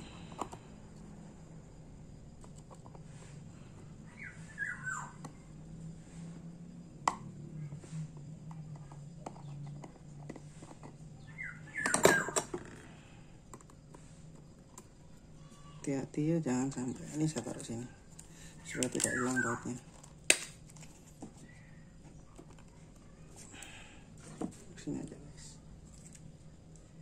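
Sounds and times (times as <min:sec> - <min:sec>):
small tools clicking and tapping: 0:08.4 - 0:11.0.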